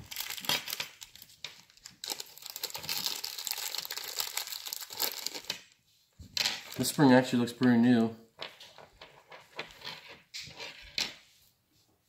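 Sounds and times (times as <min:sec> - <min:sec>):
plastic bag crinkling: 0:00.0 - 0:05.5.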